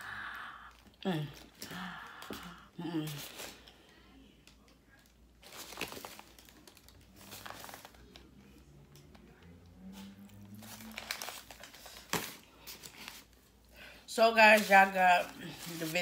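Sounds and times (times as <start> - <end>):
paper bag crinkling: 5.4 - 8.2, 9.8 - 13.4, 14.3 - 16.0.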